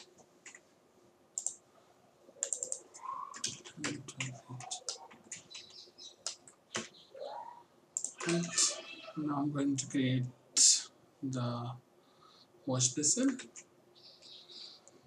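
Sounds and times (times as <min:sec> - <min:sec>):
keyboard and mouse clicking: 0:00.0 - 0:00.6, 0:01.4 - 0:01.6, 0:02.4 - 0:06.9, 0:08.0 - 0:08.7.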